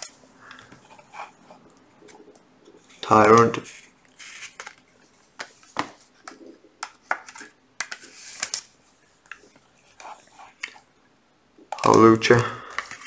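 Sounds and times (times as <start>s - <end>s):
cards tapping: 5.4s - 8.6s.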